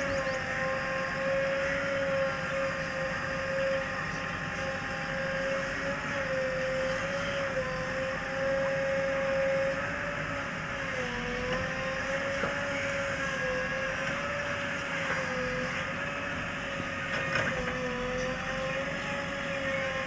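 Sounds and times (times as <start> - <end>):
diesel engine running under load: 0.0 - 20.0
steady wavering whine: 0.0 - 20.0
backhoe arm shifting soil: 4.1 - 19.0.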